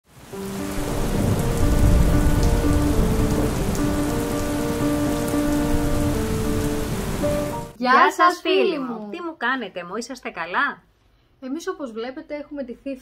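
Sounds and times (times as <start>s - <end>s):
heavy rain falling: 0.0s - 7.8s
slow melody of held notes: 0.2s - 7.8s
low rumble of thunder: 0.7s - 7.8s.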